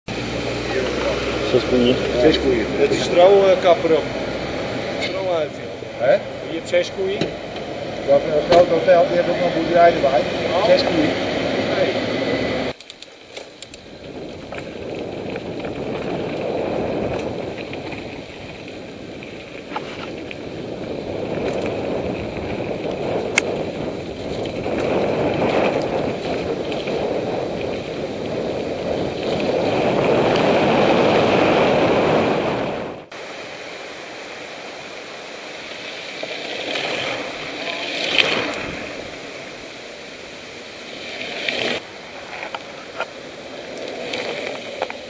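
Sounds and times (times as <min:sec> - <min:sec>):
tyres rolling on dirt trail: 0:00.1 - 0:45.0
wind over microphone: 0:13.7 - 0:33.6, 0:36.0 - 0:45.0
steady hiss: 0:33.1 - 0:45.0.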